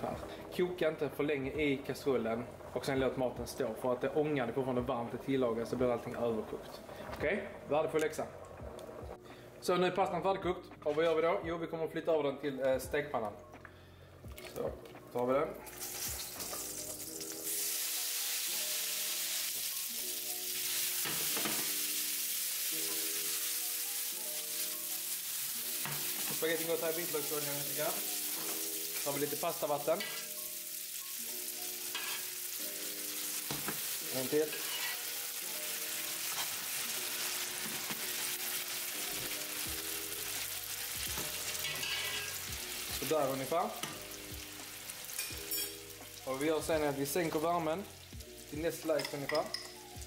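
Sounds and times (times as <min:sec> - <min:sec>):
soft background music: 0:00.0 - 0:50.0
pasta sizzling in frying pan: 0:15.7 - 0:50.0.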